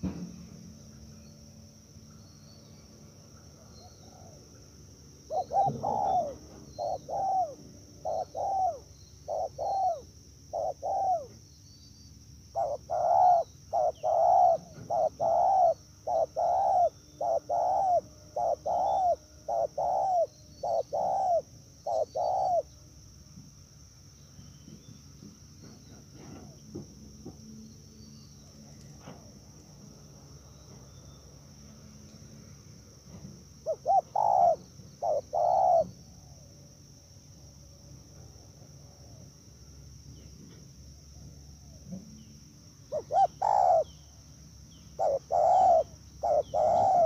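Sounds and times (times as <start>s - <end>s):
high insect drone: 0.0s - 47.0s
dove cooing: 3.6s - 4.4s, 5.3s - 11.4s, 12.5s - 22.7s, 33.6s - 36.4s, 42.9s - 44.0s, 44.9s - 47.0s.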